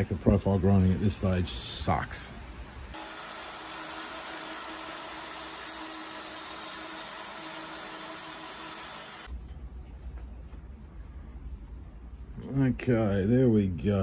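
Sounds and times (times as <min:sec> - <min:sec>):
belt grinder motor hum: 0:03.0 - 0:09.3.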